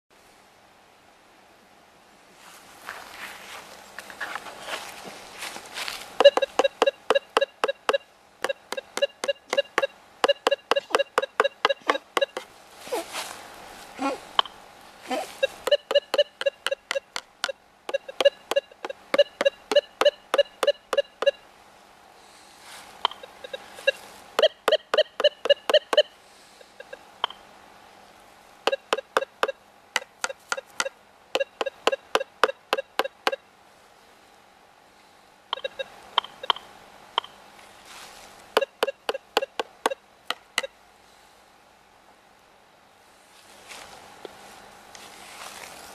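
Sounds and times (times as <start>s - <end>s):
faint steady hum: 0.1s - 45.9s
metal detector beeps: 6.2s - 12.4s, 15.4s - 21.4s, 23.0s - 27.4s, 28.7s - 29.6s, 30.2s - 33.4s, 35.5s - 37.4s, 38.6s - 40.0s.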